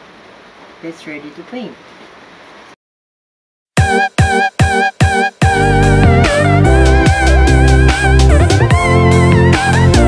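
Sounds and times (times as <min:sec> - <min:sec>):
background music: 0:03.8 - 0:10.0.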